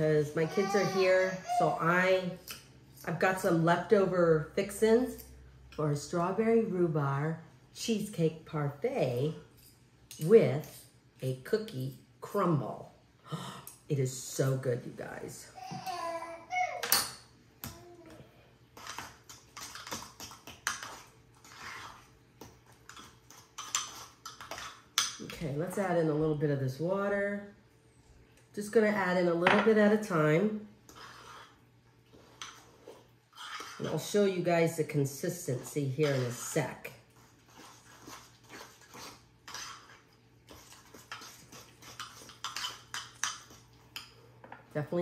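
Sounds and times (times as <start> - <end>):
spoon scraping bowl: 18.8 - 22.2, 22.9 - 25.4, 30.9 - 34.2, 35.6 - 43.6.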